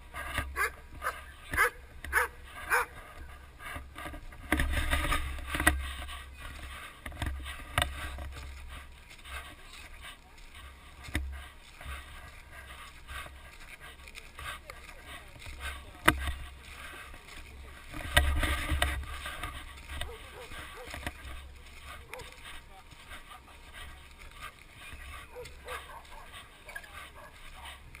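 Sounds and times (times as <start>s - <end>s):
dogs barking: 0.5s - 3.0s, 19.8s - 27.8s.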